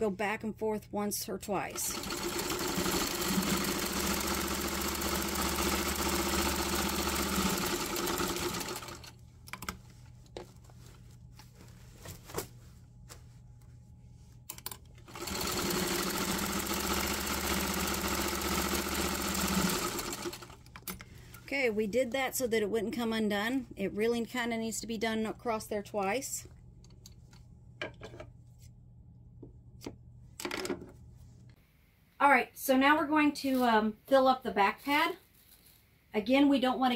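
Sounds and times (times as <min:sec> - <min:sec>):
sewing machine stitching: 0:01.7 - 0:09.1, 0:15.0 - 0:20.9.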